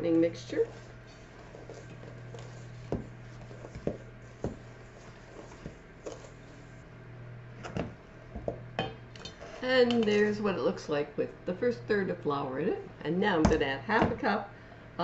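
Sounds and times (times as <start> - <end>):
wooden spoon stirring in bowl: 0.0 - 6.9.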